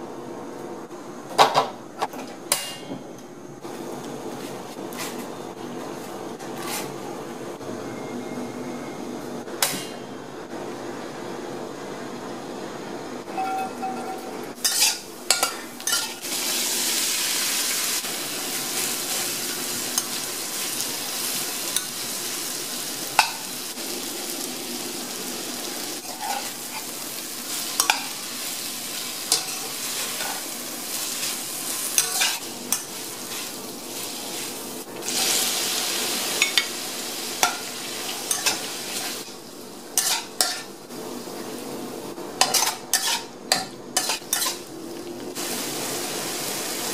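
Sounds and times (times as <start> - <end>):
metal spatula scraping a wok: 13.3 - 16.2, 26.0 - 28.1, 29.3 - 34.6, 40.0 - 40.7, 42.4 - 43.3, 44.0 - 44.7
food sizzling in hot oil: 14.6 - 41.7, 42.3 - 46.9.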